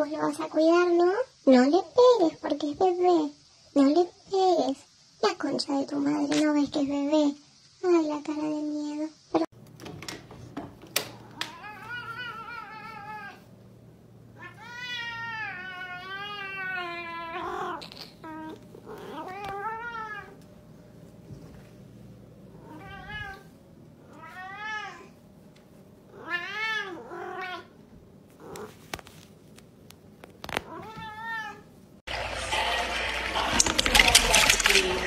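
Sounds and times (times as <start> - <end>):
cat meowing: 11.3 - 13.5, 14.4 - 20.4.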